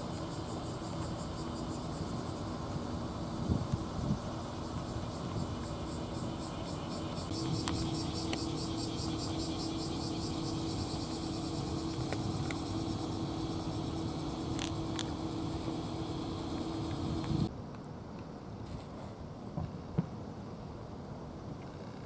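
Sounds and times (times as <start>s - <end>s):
low hum: 0.0s - 17.5s
outdoor hiss: 0.0s - 17.5s
rapid high rhythmic pulsing: 0.0s - 17.5s.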